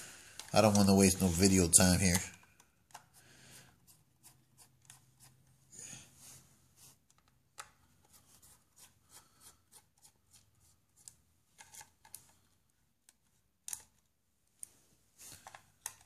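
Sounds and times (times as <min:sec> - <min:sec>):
clicks and rustles of handling parts: 0:00.2 - 0:03.8, 0:07.0 - 0:08.9, 0:09.7 - 0:16.0.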